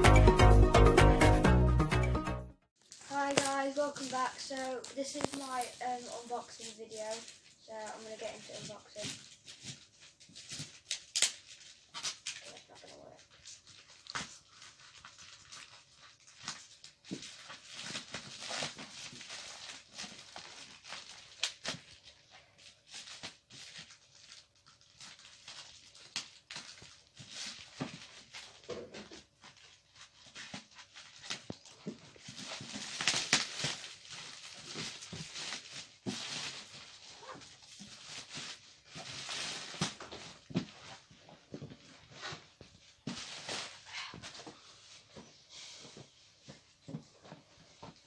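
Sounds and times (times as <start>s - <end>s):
plastic bag rustling and crinkling: 2.8s - 48.0s
packing tape pulled: 10.4s - 12.6s, 30.2s - 40.1s.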